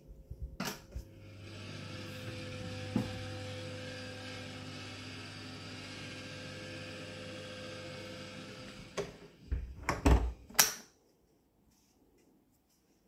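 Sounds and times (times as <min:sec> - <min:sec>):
door knocking and clunking shut: 0:09.5 - 0:10.4.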